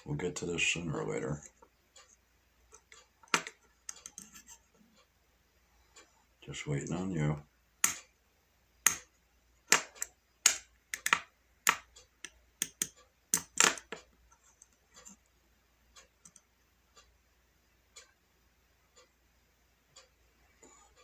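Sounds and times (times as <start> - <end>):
typing taps and clicks: 9.7 - 15.2, 16.2 - 16.5.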